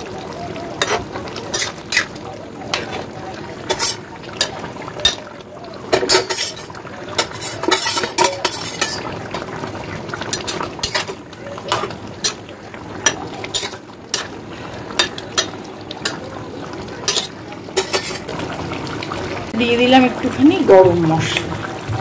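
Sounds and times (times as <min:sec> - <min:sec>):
metal spatula scraping a pan: 0:00.8 - 0:05.2, 0:05.9 - 0:09.2, 0:10.3 - 0:12.4, 0:13.0 - 0:14.4, 0:17.0 - 0:18.3.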